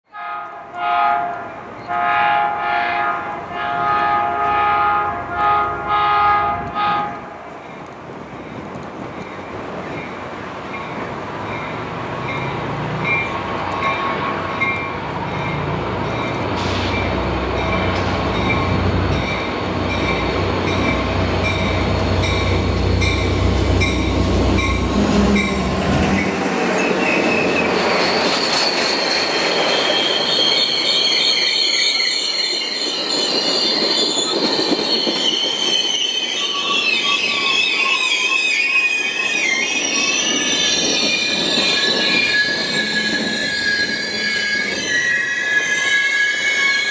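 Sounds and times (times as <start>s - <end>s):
diesel locomotive engine rumble: 3.2s - 30.6s
train wheels squealing: 9.3s - 46.9s.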